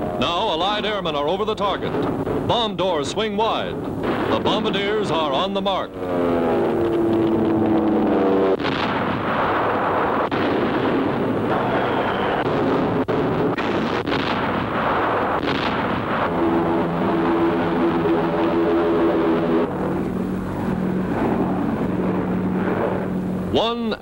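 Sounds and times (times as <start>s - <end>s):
aircraft engines droning: 0.0s - 10.3s, 16.2s - 24.0s
bomb explosions rumbling: 0.0s - 23.8s.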